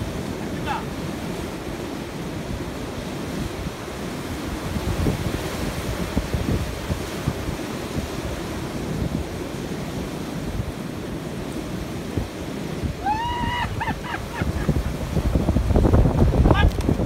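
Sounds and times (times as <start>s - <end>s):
surf breaking on rocky shore: 0.0s - 17.0s
wind buffeting microphone: 0.0s - 17.0s.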